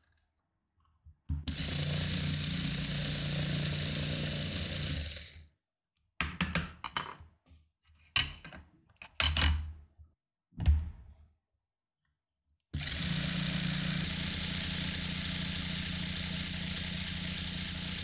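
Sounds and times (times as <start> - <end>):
toy motor whirring: 1.5 - 5.4, 12.8 - 18.0.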